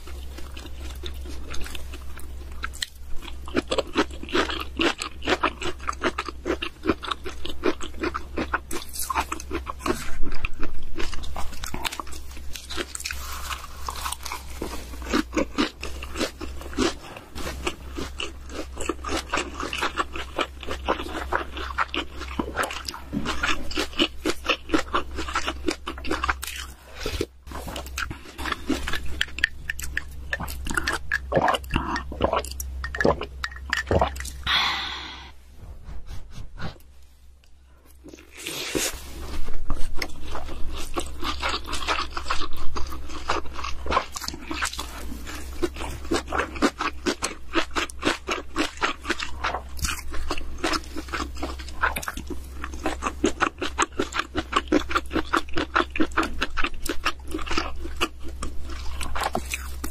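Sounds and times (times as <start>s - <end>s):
chewing and crunching food: 0.0s - 34.6s, 35.8s - 59.9s
steady low hum: 0.0s - 59.9s
wet mouth sounds: 15.0s - 36.9s.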